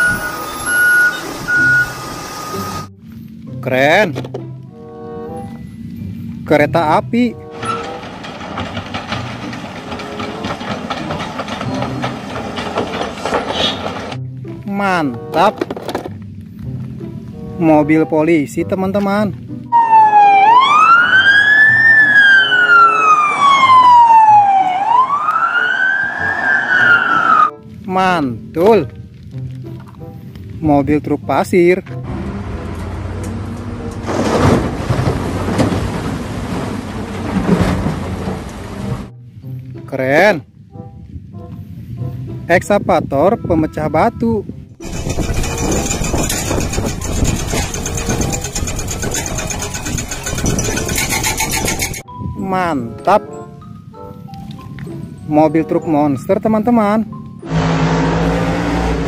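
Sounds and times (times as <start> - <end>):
diesel engines running: 0.0 - 3.4, 4.2 - 14.5, 31.9 - 39.4, 44.8 - 52.1, 57.2 - 59.0
hydraulic breakers hammering rubble: 7.0 - 14.2, 33.9 - 39.1, 44.8 - 52.0
emergency siren wailing: 19.7 - 27.6.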